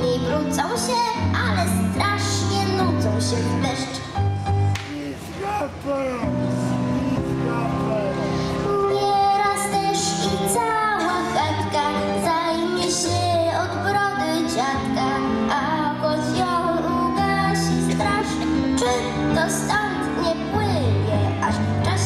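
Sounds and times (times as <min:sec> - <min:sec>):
girl singing into microphone: 0:00.0 - 0:04.2, 0:08.6 - 0:22.0
instrumental backing music: 0:00.0 - 0:22.0.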